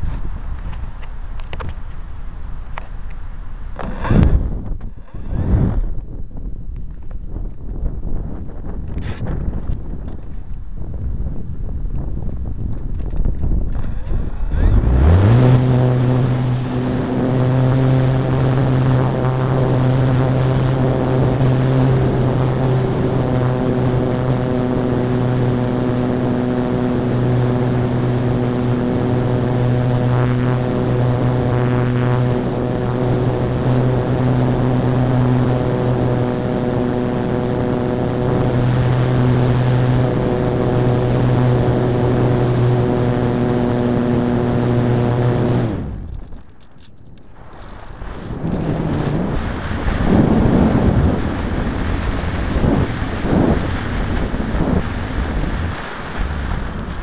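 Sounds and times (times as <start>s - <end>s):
model aircraft motor and propeller: 0.0s - 6.1s, 11.8s - 57.0s.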